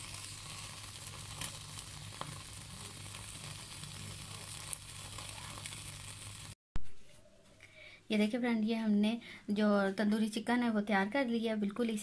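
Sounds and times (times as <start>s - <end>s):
chicken sizzling over flame: 0.0s - 6.6s
sharp crackles: 0.0s - 6.6s.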